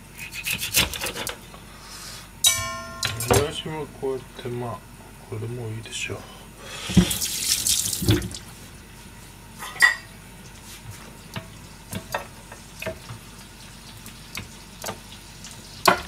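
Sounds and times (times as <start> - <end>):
kitchen utensils clinking: 2.5 - 3.6
oil sizzling in frying pan: 6.8 - 8.4, 10.4 - 16.0.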